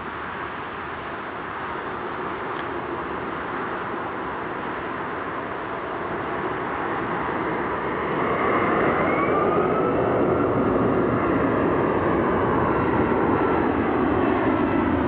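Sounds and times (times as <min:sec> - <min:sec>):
jet aircraft rumble: 0:00.0 - 0:15.0
whining engine tones: 0:08.1 - 0:14.8.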